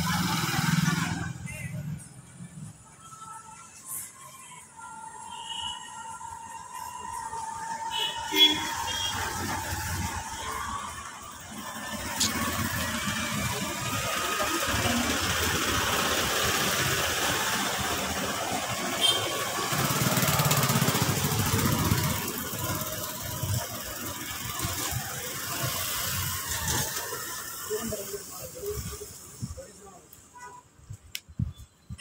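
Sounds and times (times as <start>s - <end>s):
vehicle engine running: 8.9s - 28.6s.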